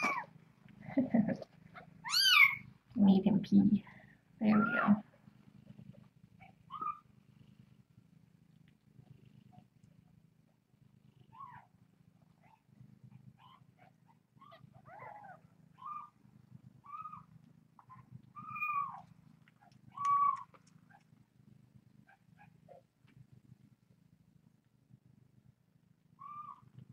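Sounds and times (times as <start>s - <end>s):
cat purring: 0.0s - 26.9s
kitten mewing: 19.9s - 21.0s.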